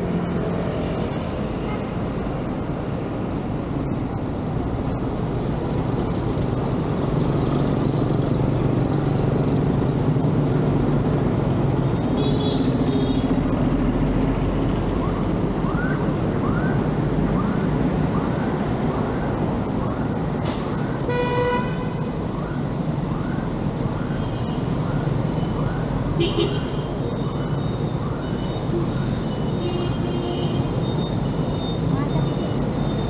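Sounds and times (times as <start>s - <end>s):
bus engine humming: 0.0s - 16.4s
city street traffic: 0.0s - 33.0s.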